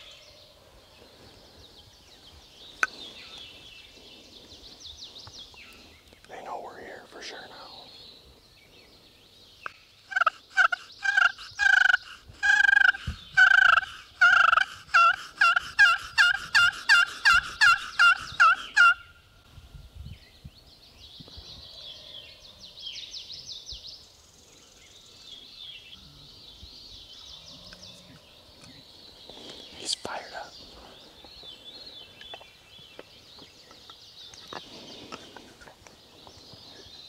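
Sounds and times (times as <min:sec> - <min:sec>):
turkey yelps: 0:10.1 - 0:19.0.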